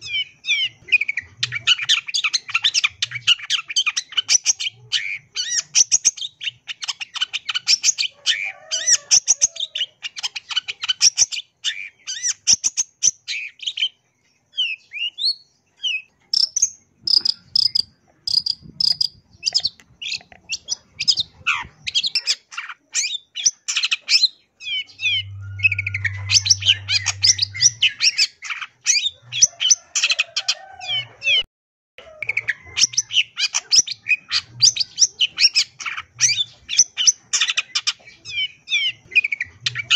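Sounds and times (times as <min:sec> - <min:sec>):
shrike singing chattering song: 0:00.0 - 0:31.1.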